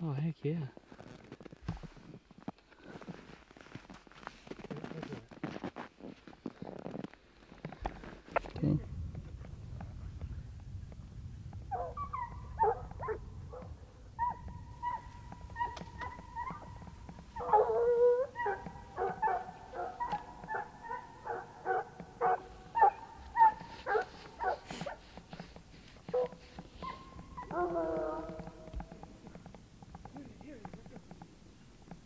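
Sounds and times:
hounds baying: 0:11.5 - 0:31.2.

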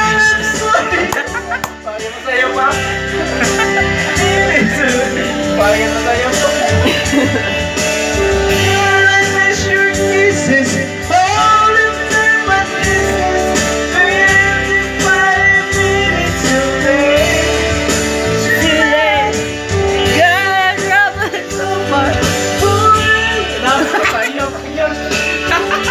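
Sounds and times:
man singing into microphone: 0:00.0 - 0:07.3, 0:08.4 - 0:25.9
music backing track: 0:00.0 - 0:25.9.

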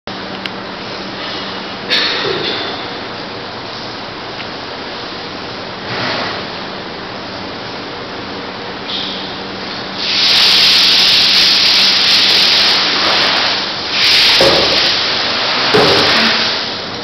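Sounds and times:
loud steady hissing: 0:08.6 - 0:17.0.

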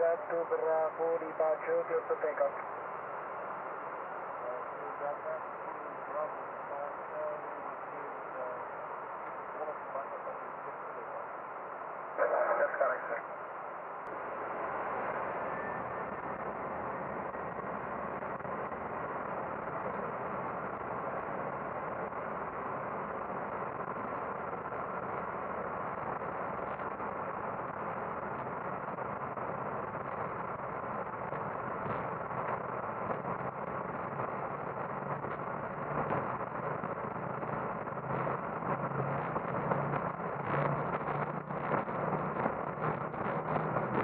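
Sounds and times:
jet engine and airflow rush: 0:00.0 - 0:44.0.

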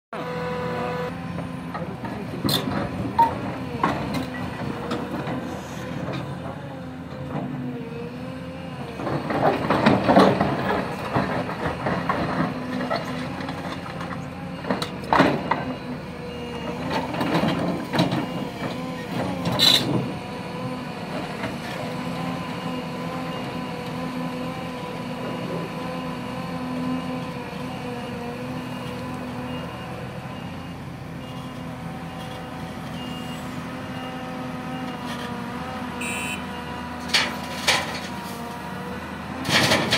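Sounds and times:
excavator diesel engine running: 0:00.2 - 0:39.9
soil and rock rumbling: 0:01.2 - 0:27.8
excavator bucket clanking: 0:01.7 - 0:06.6, 0:39.4 - 0:39.9.

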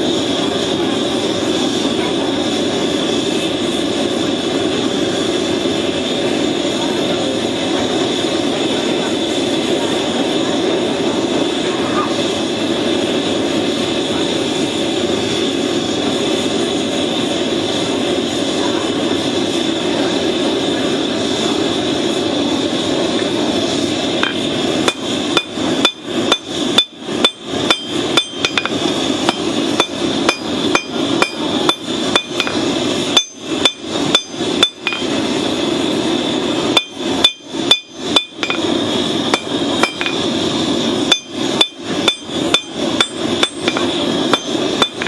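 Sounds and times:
steady rushing noise: 0:00.0 - 0:45.0
hammer striking metal on anvil: 0:24.2 - 0:35.1, 0:36.8 - 0:38.6, 0:39.3 - 0:40.2, 0:41.1 - 0:45.0.

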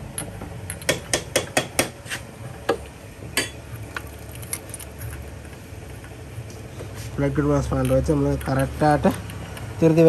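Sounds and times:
metal spanner clicking: 0:00.1 - 0:01.9, 0:07.6 - 0:10.0.

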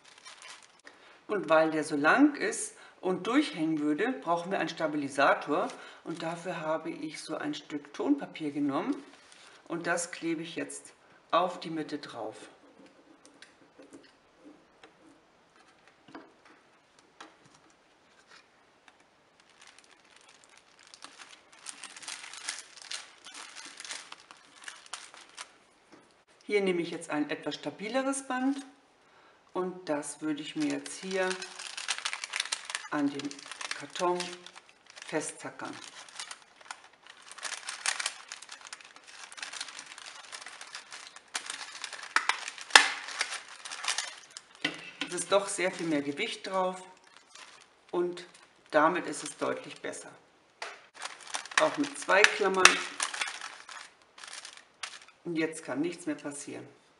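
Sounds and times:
paper bags crinkling: 0:00.0 - 0:00.9, 0:18.1 - 0:25.6, 0:30.4 - 0:49.9, 0:50.9 - 0:55.2.

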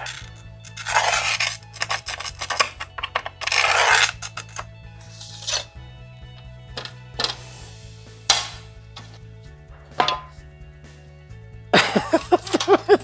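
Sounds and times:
glass cutter scoring glass: 0:00.0 - 0:05.7
background music: 0:00.0 - 0:13.0.

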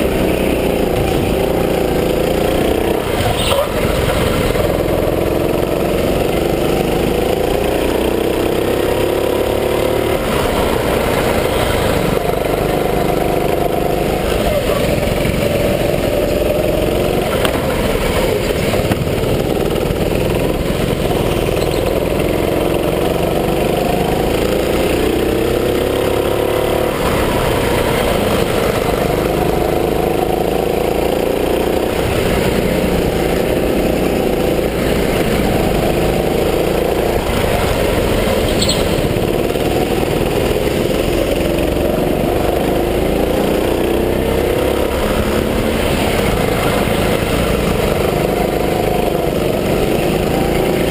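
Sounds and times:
go-kart engine racing: 0:00.0 - 0:50.9
brief high squeak: 0:21.6 - 0:22.0, 0:38.5 - 0:39.1.

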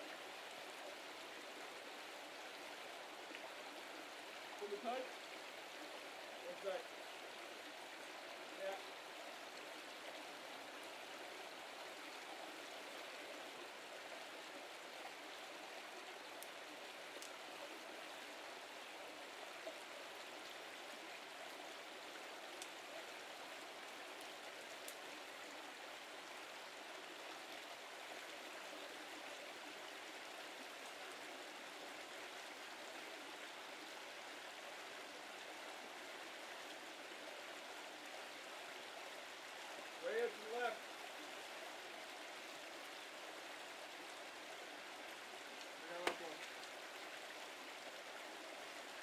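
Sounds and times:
brook water running: 0:00.0 - 0:49.0
faint clicks: 0:17.2 - 0:17.4, 0:22.6 - 0:22.8, 0:24.2 - 0:25.0.

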